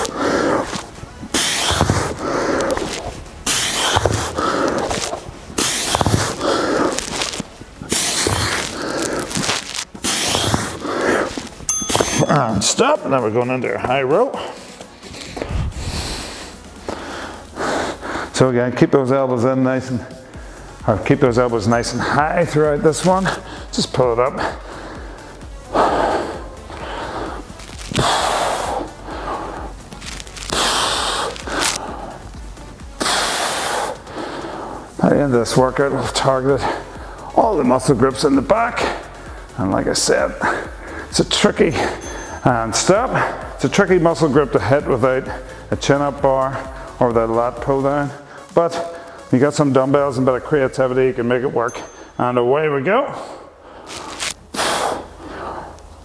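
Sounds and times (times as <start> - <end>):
man breathing hard: 0.0 - 12.1, 14.4 - 18.4, 20.1 - 20.8, 23.3 - 23.7, 24.4 - 35.0, 36.6 - 37.4, 38.8 - 39.6, 40.4 - 41.1, 41.7 - 42.4, 45.3 - 45.7, 48.2 - 49.3, 53.1 - 56.0
dull thumps: 0.0 - 12.3.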